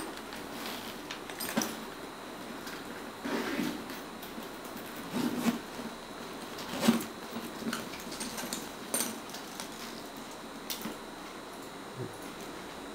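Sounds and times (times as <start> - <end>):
leather bag clicks and rustles: 3.6 - 11.0.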